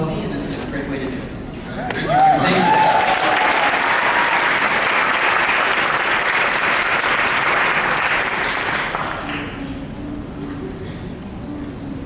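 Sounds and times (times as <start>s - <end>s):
audience applauding: 1.9s - 9.7s.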